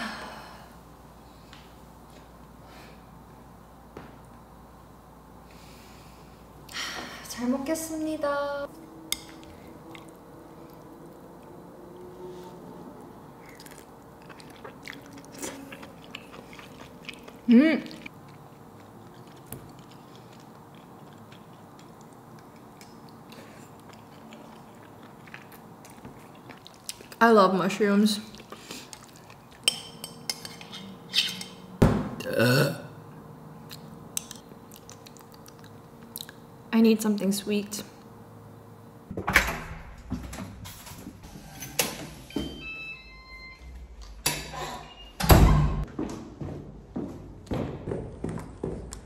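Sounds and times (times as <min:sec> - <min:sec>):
low room hum: 0:00.0 - 0:49.0
quiet chewing: 0:12.9 - 0:27.2, 0:28.3 - 0:29.8, 0:33.6 - 0:36.5
electronic door lock beeping melody: 0:42.3 - 0:43.8
heavy door thump: 0:45.2 - 0:45.9
knocks and footsteps: 0:45.7 - 0:49.0.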